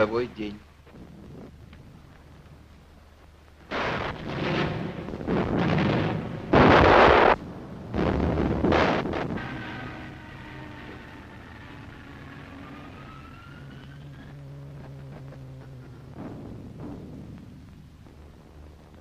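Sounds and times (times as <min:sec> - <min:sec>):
heavy explosions: 0:00.0 - 0:19.0
low rumble: 0:00.0 - 0:19.0
faint wailing siren: 0:09.1 - 0:17.5.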